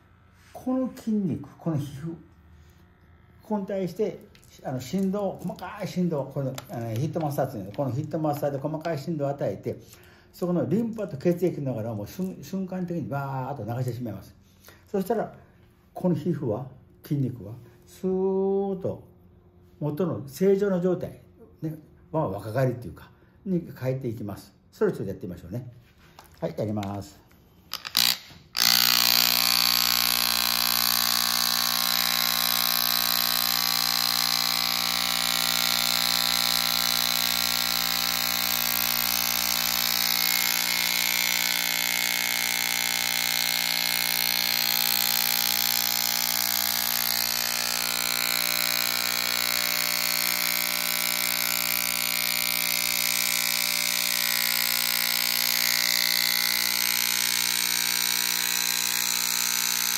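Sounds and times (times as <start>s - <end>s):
electric massager buzzing: 0.0s - 9.6s, 26.2s - 59.9s.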